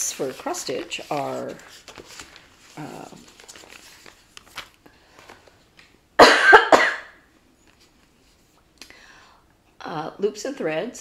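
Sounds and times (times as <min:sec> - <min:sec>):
cardboard packaging rustling: 0:00.0 - 0:05.8
woman coughing: 0:06.2 - 0:07.2.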